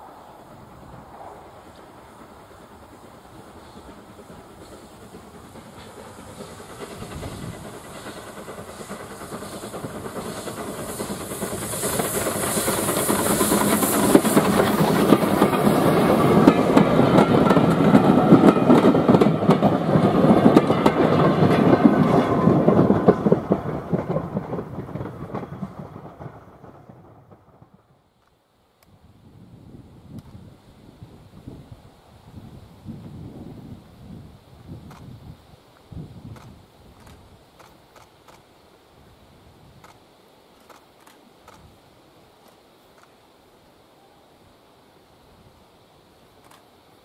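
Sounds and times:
hiss of steam: 0.0 - 27.2, 29.0 - 47.0
steam train passing: 0.0 - 47.0
coach wheels clattering on track: 1.6 - 27.8.

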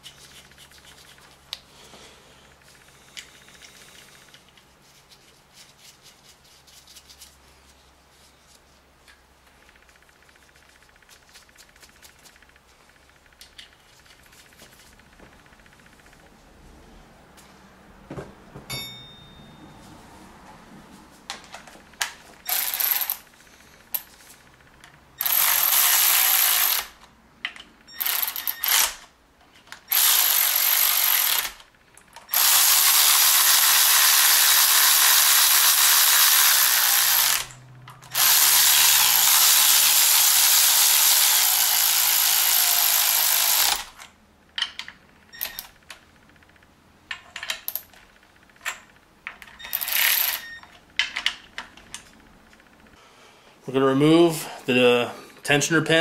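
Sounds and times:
power ratchet running: 22.5 - 23.2, 25.2 - 27.0, 28.0 - 29.0, 29.9 - 31.7, 32.3 - 44.0
ratchet clicks: 22.5 - 23.2, 23.9 - 29.1, 29.9 - 51.7.

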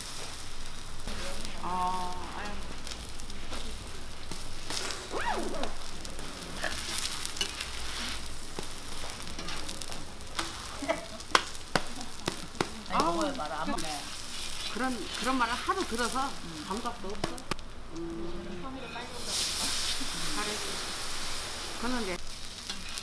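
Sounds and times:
pancakes sizzling in oil: 0.0 - 23.0
metal spatula scraping griddle: 2.5 - 11.2, 22.5 - 23.0.

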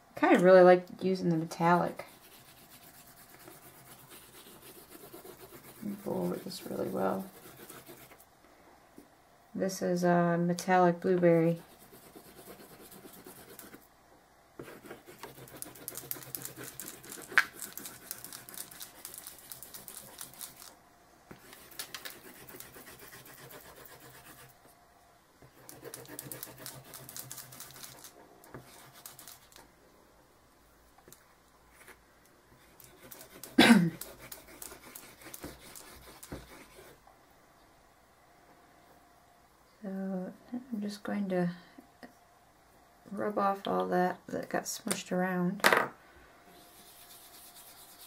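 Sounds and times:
hand rubbing and scratching board: 1.7 - 8.2, 11.6 - 13.8, 14.6 - 20.7, 21.3 - 24.5, 25.4 - 29.6, 32.6 - 37.0, 46.6 - 48.0.

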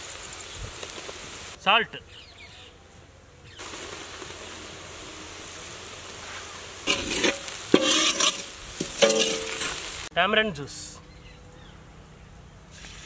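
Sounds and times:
masala sizzling in hot oil: 0.0 - 1.6, 3.5 - 10.1
scraping and knocks in pan: 6.9 - 9.8.

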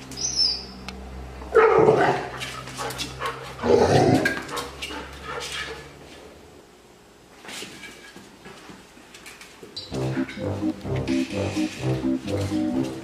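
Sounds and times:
dog barking: 4.4 - 5.9.

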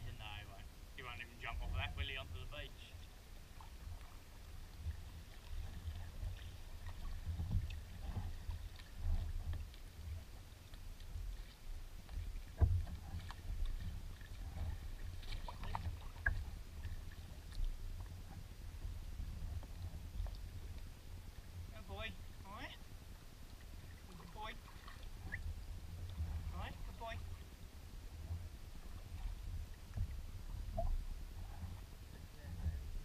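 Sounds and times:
water buffeting microphone: 0.0 - 33.0
water splashes and drips: 3.6 - 17.8, 23.5 - 25.4.

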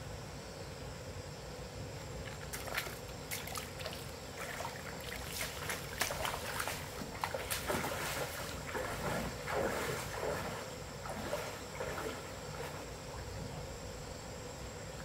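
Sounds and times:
faint steady water noise: 0.0 - 15.0
legs wading through stream water: 2.2 - 13.7.

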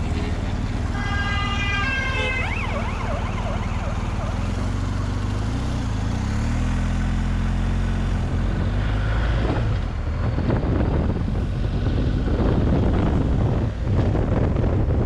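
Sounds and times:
motorcycle engine running: 0.0 - 6.1
wind buffeting microphone: 8.4 - 15.0.

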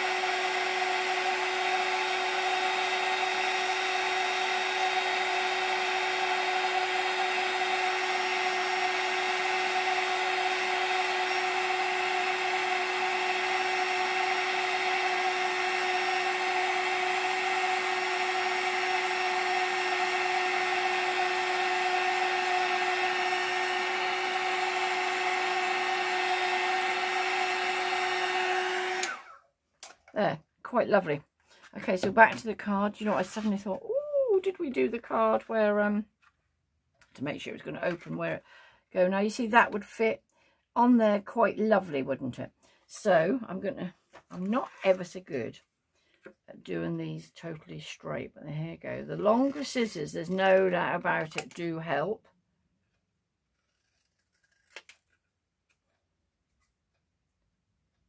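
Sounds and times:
heat gun blowing: 0.0 - 29.5.

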